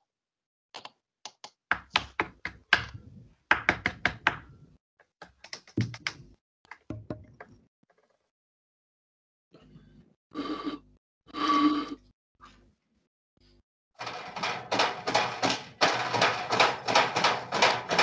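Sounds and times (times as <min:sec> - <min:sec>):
sharp knocks and clicks: 0:14.0 - 0:18.0.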